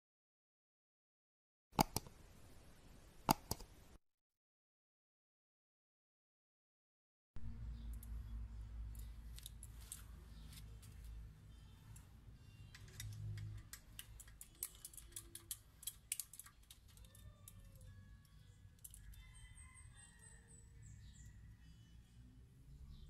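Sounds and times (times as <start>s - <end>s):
low hum: 7.4s - 13.7s
hand tool clicking on metal: 12.7s - 17.8s.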